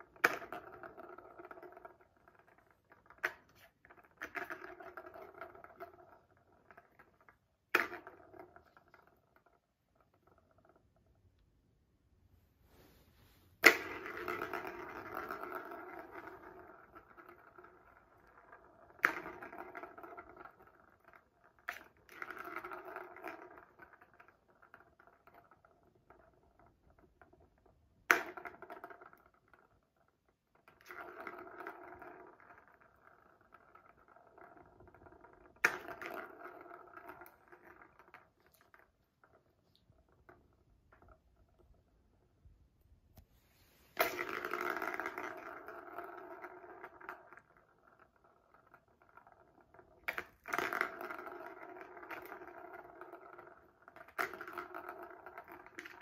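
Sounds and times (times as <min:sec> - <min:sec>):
ball rolling rattle: 0:00.0 - 0:11.4, 0:13.2 - 0:42.5, 0:43.1 - 0:56.0.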